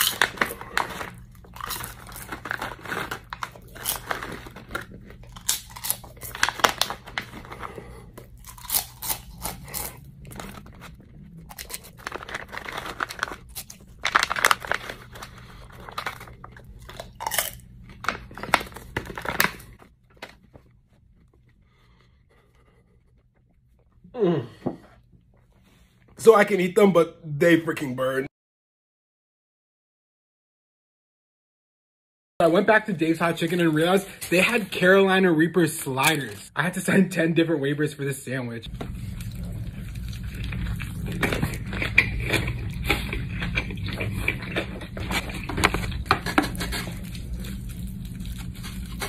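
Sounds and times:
plastic bag crinkling: 0.0 - 20.6
crunching and chewing peppers: 0.0 - 24.1, 38.7 - 49.0.

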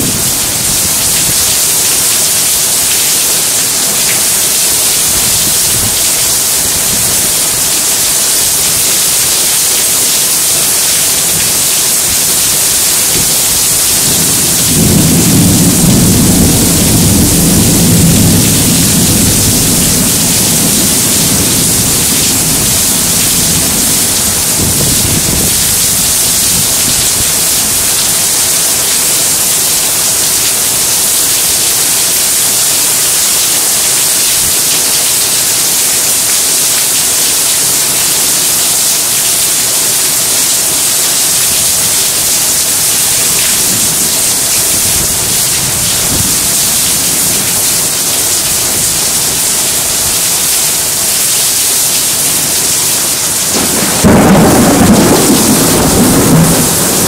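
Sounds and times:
thunder rumbling: 0.0 - 7.6, 10.5 - 28.4, 41.6 - 50.1, 52.3 - 57.0
heavy rain hissing: 0.0 - 57.0.

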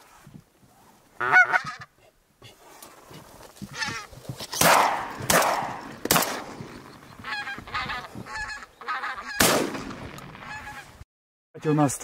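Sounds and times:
geese honking: 1.2 - 1.9, 3.6 - 4.1, 5.7 - 9.6, 10.4 - 11.0
shotgun shots: 4.6 - 6.7, 9.4 - 10.5.

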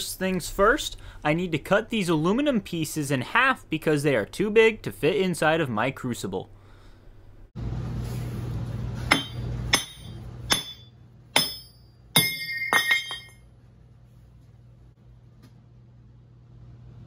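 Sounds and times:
ringing metallic clanks: 9.1 - 13.4.

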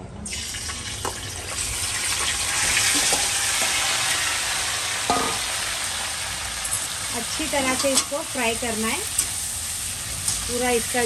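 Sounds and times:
chicken sizzling in hot oil: 0.3 - 11.0
spoon knocking metal pan: 5.1 - 5.5.

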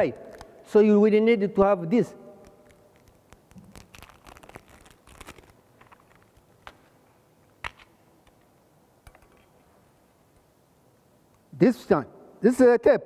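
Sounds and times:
tape roll rustling: 2.4 - 7.0.

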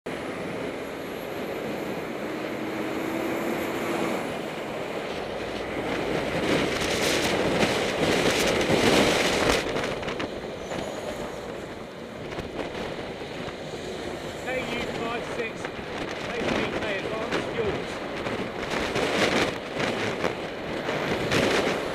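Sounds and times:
lorry passing close: 0.1 - 12.2
bicycle road noise: 0.1 - 21.9
wind on camera: 0.3 - 21.9.

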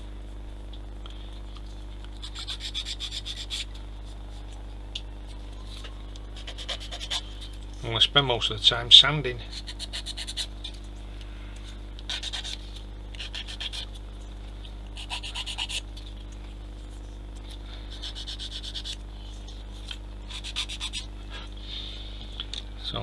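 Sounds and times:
hand sanding plastic parts: 2.2 - 4.6, 5.3 - 7.6, 9.5 - 10.8, 12.1 - 14.0, 15.0 - 16.2, 17.0 - 21.1.

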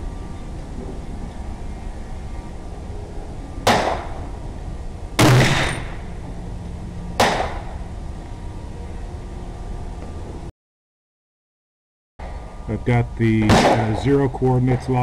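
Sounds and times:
rifle shots: 3.7 - 4.2, 5.2 - 6.1, 7.2 - 7.7, 13.5 - 14.0.

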